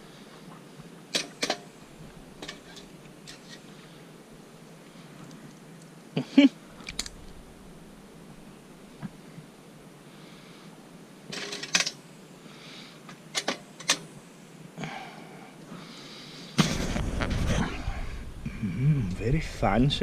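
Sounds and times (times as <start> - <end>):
loud rushing rumble: 16.7 - 20.0.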